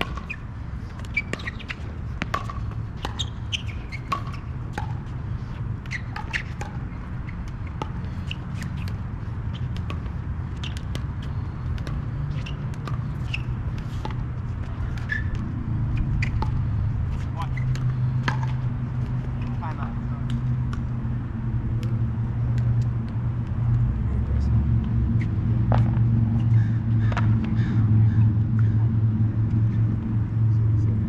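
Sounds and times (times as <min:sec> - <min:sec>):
sneakers squeaking on court: 0:00.0 - 0:19.8
low hum: 0:01.9 - 0:31.0.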